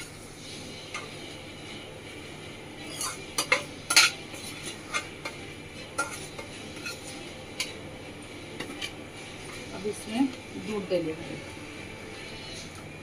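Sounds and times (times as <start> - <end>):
low sizzle of frying: 0.0 - 13.0
metal spatula scraping a pan: 2.8 - 7.8.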